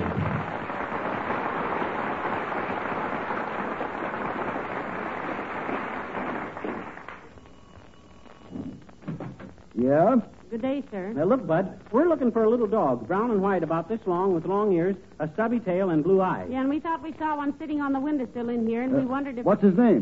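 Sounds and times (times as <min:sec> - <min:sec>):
studio audience applauding: 0:00.0 - 0:07.4.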